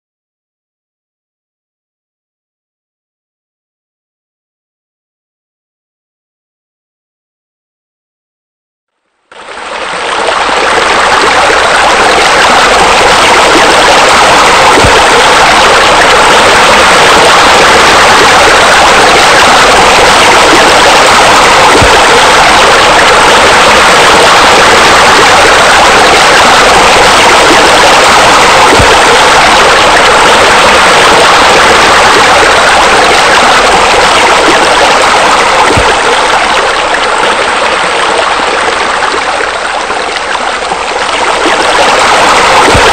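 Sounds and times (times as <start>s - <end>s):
water splashing into pool: 9.3s - 42.9s.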